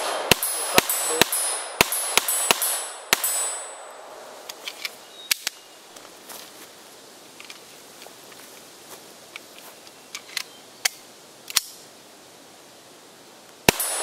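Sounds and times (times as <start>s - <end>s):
pistol shots: 0.0s - 3.8s, 13.7s - 14.0s
pistol handling clicks: 4.4s - 5.6s, 10.1s - 11.8s.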